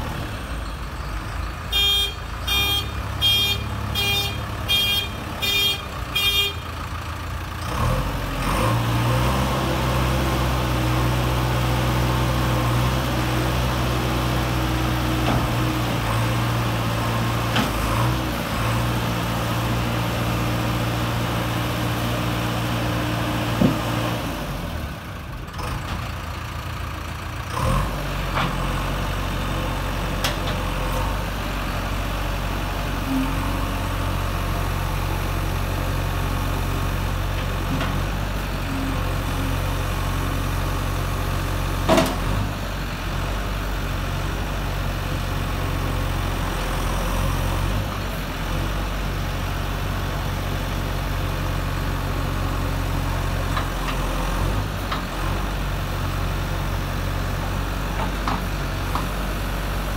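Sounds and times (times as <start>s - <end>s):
diesel engine idling: 0.0s - 8.4s, 24.2s - 30.2s, 30.8s - 59.9s
engine running under load: 0.0s - 59.9s.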